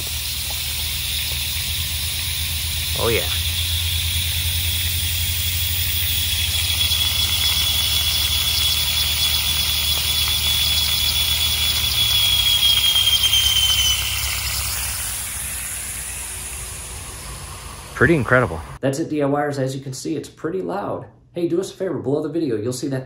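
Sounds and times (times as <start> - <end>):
high whistle: 0.0 - 17.8
compressed air hissing: 0.0 - 18.8
low hum: 0.0 - 18.8.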